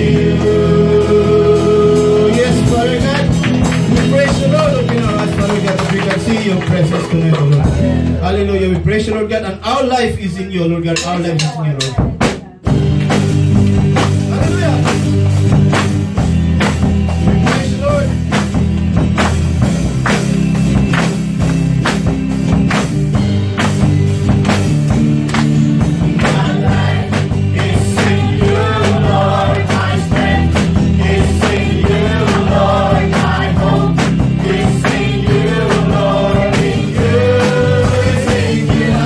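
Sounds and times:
person singing: 0.0 - 2.7
drum kit beat: 0.0 - 9.6, 10.5 - 39.0
low bass notes: 0.0 - 39.0.

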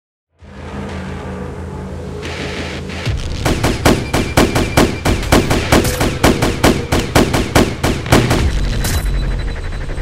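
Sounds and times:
rapid gunfire: 3.4 - 10.0.

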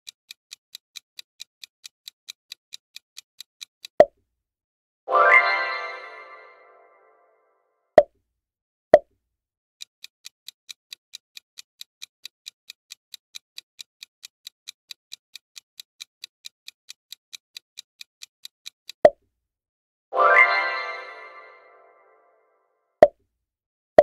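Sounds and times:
clock-like timer ticks: 0.0 - 4.2, 9.8 - 19.2.

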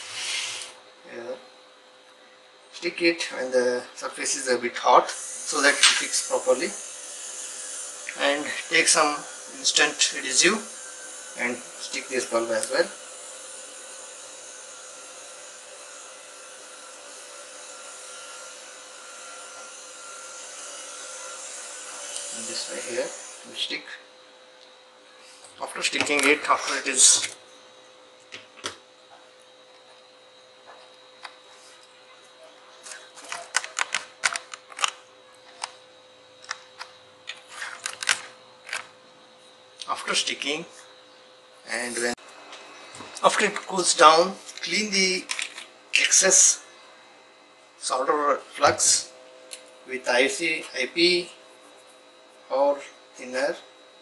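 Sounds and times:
hot-air blower hissing: 0.0 - 1.4, 3.0 - 31.8, 35.5 - 54.0
faint steady whine: 0.0 - 7.0, 21.4 - 54.0.

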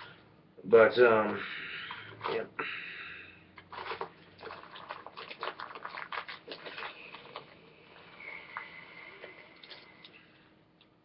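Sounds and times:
man breathing sharply: 1.4 - 3.6.

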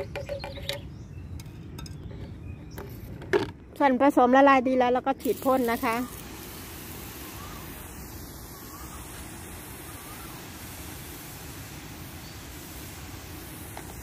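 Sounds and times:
pressure sprayer hissing: 5.2 - 14.0.

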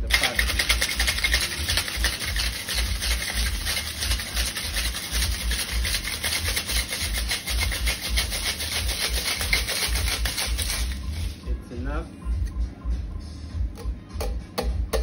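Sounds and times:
ice rattling in cocktail shaker: 0.0 - 11.4.

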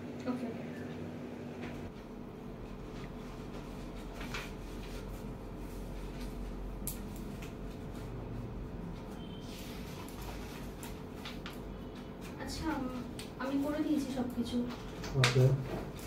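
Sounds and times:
low room hum: 0.0 - 16.0
paper rustling: 3.5 - 7.4, 9.5 - 11.7.

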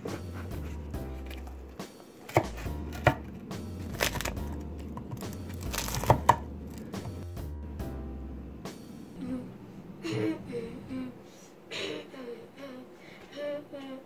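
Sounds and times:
crust crunching: 2.3 - 7.2.

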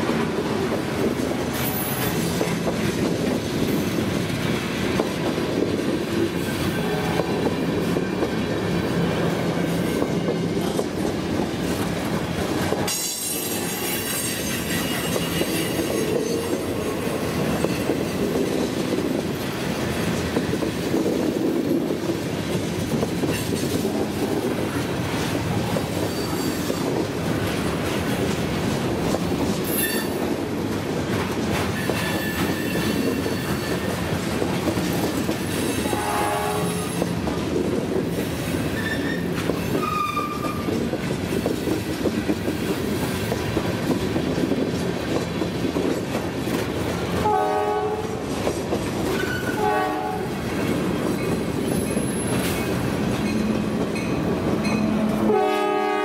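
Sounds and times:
clickety-clack over rail joints: 0.0 - 56.0
train wheels rumbling on rails: 0.0 - 56.0
wheel squeal: 13.2 - 16.6, 26.0 - 26.8, 31.8 - 34.0, 38.8 - 40.7.

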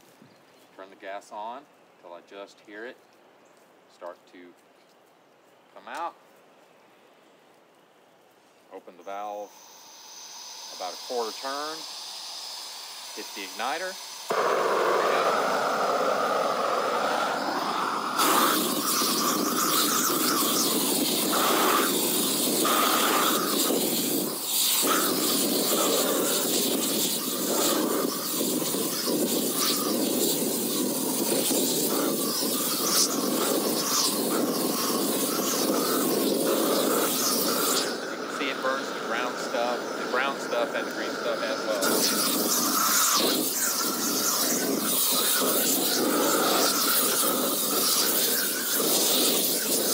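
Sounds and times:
weed torch hissing: 8.5 - 49.9
wind buffeting microphone: 13.8 - 49.9.

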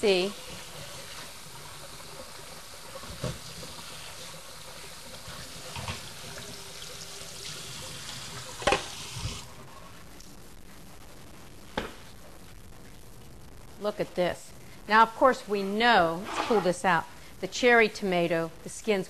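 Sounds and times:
faucet water splashing in sink: 0.3 - 9.4.

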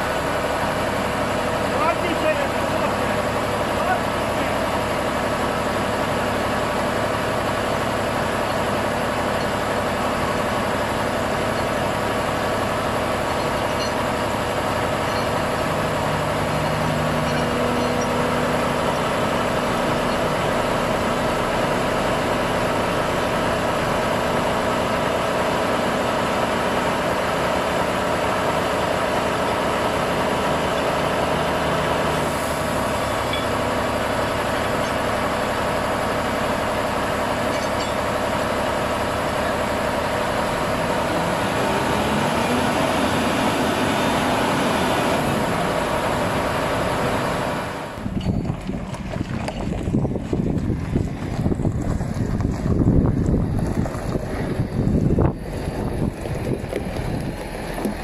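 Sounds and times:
heavy diesel engine idling: 0.0 - 58.0.

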